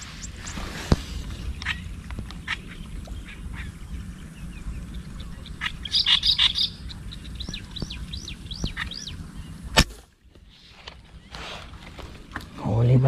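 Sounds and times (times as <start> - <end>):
bird chirping: 0.0 - 9.7
low steady rumble: 0.0 - 13.0.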